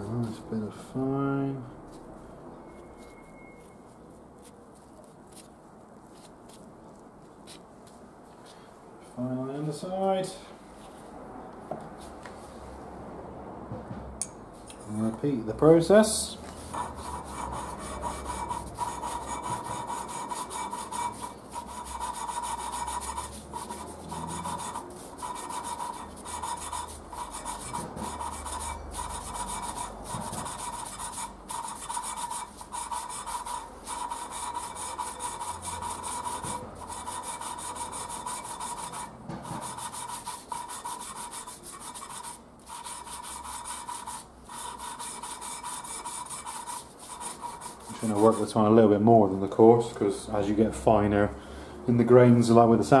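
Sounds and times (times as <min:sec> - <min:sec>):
valve lapping gritty rasp: 0:16.6 - 0:48.6.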